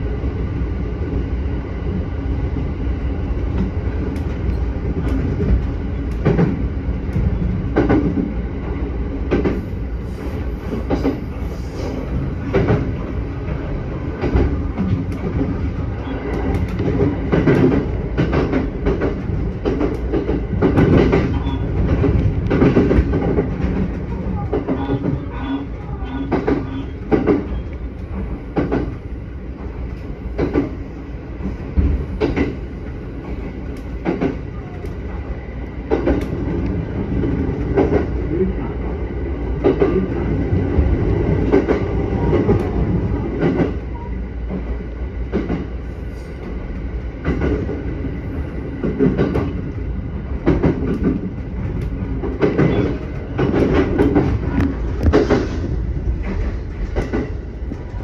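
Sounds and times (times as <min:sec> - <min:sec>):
train wheels rumbling on rails: 0:00.0 - 0:58.0
wheels clacking over rail joints: 0:50.4 - 0:58.0.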